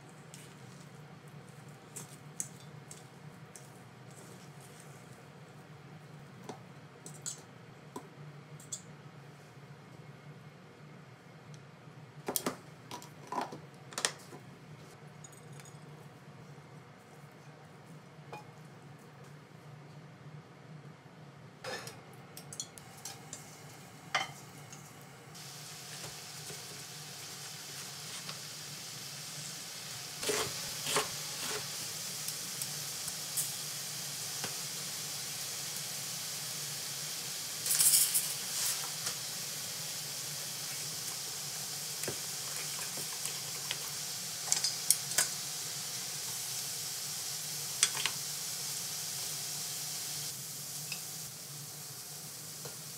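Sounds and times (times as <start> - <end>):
food sizzling in a pan: 22.8 - 52.9.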